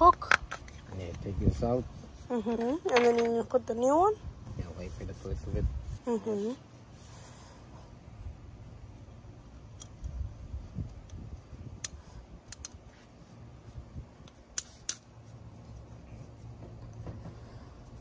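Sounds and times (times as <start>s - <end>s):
plastic and rubber clicks and snaps: 11.8s - 12.8s.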